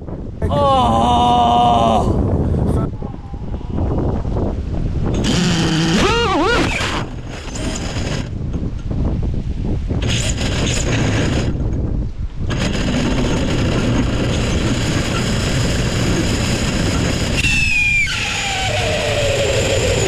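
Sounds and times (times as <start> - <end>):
strong wind buffeting microphone: 0.0 - 20.0
whine falling in pitch: 17.0 - 20.0.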